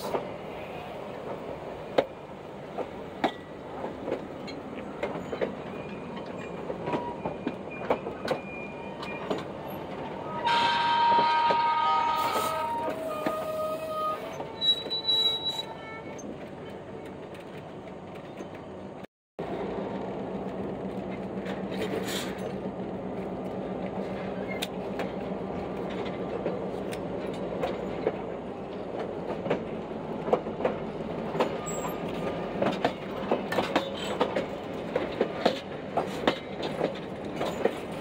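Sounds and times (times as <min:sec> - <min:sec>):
train wheels clicking on track: 0:01.1 - 0:10.2, 0:14.3 - 0:38.0
train wheels squealing: 0:04.4 - 0:09.8, 0:12.2 - 0:16.3, 0:31.4 - 0:32.1.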